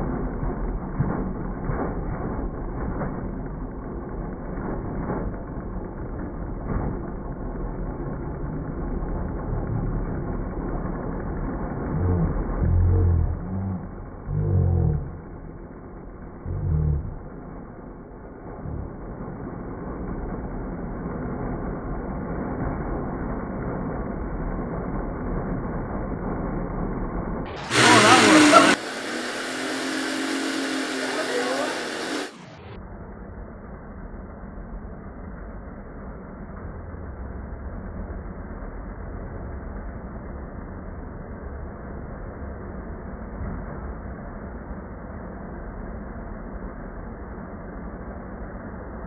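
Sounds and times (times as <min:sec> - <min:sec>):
steady hum: 0:00.0 - 0:49.0
loud burst: 0:27.5 - 0:32.8
flywheel motors spinning: 0:27.6 - 0:32.5.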